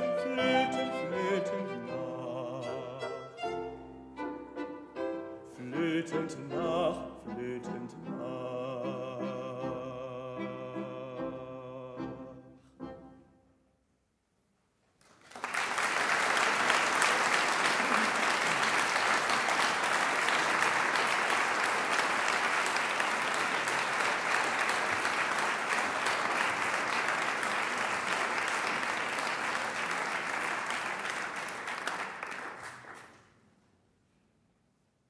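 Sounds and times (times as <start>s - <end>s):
audience applauding: 15.0s - 33.4s.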